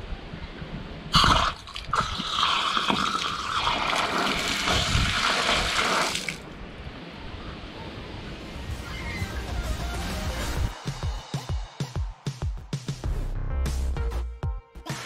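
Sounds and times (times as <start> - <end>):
water gushing from tap: 1.2 - 6.4.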